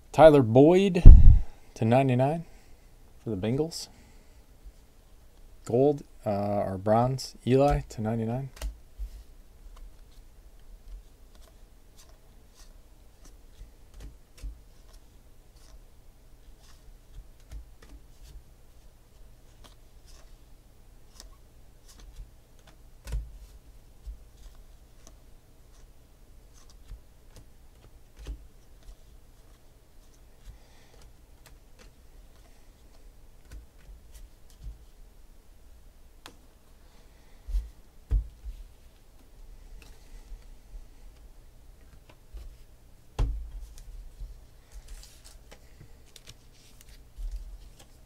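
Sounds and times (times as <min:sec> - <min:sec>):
cards flipped by hand: 0:11.3 - 0:15.0, 0:44.7 - 0:48.0.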